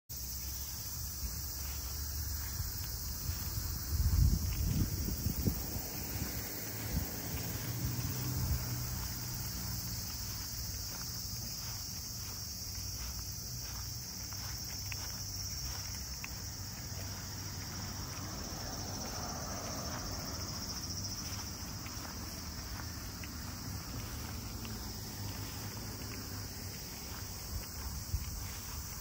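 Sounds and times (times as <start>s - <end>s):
footsteps on grass: 0.1s - 29.0s
insects chorus: 0.1s - 29.0s.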